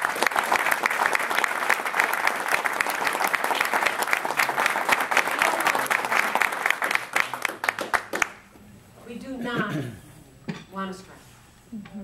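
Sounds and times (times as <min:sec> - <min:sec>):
audience applauding: 0:00.0 - 0:08.4.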